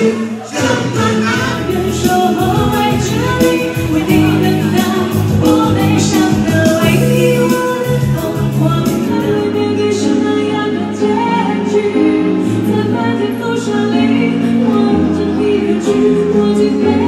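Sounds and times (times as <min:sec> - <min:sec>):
electronic keyboard chords: 0:00.0 - 0:17.0
woman singing into a microphone: 0:00.0 - 0:17.0.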